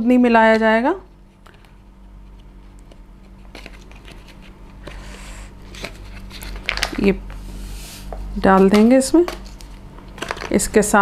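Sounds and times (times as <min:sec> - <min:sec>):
paper rustling: 0:01.3 - 0:07.0, 0:08.6 - 0:10.6.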